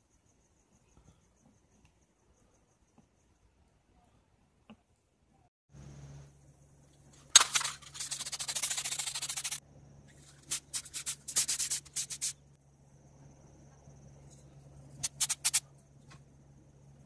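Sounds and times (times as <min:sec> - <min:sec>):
aerosol spray hissing: 0:08.0 - 0:09.6, 0:10.4 - 0:12.4, 0:15.0 - 0:15.6.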